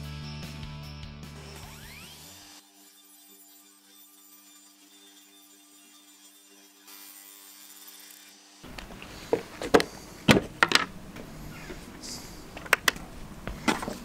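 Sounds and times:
background music: 0.0 - 2.4.

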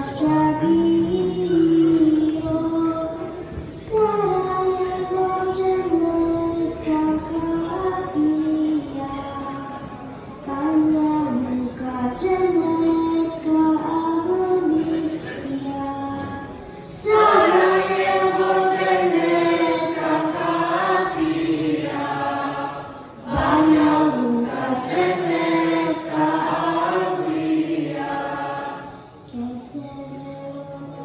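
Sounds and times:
mixed choir singing: 16.9 - 29.3.

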